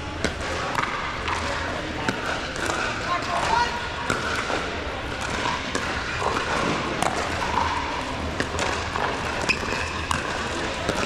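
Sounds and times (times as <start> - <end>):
crowd and court hum: 0.0 - 11.0
ball bouncing on floor: 8.4 - 11.0.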